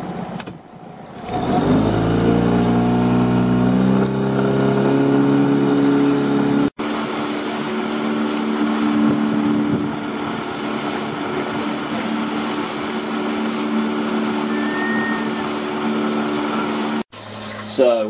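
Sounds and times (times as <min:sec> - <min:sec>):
boat engine humming: 0:00.0 - 0:18.0
water rushing along hull: 0:00.9 - 0:18.0.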